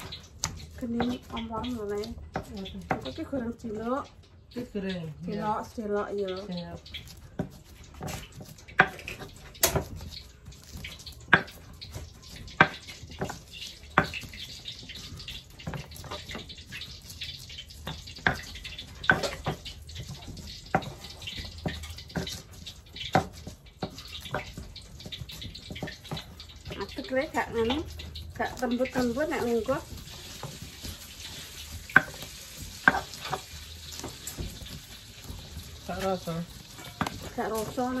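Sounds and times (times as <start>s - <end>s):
pestle scraping in mortar: 0.0s - 3.8s, 6.8s - 38.0s
stone pestle knocking in mortar: 7.1s - 15.0s, 15.6s - 38.0s.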